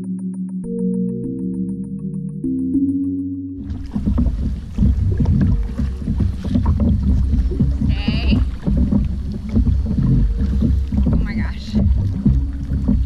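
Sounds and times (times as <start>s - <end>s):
water splashing and sloshing: 3.6s - 13.0s
wind rumble on microphone: 3.6s - 13.0s.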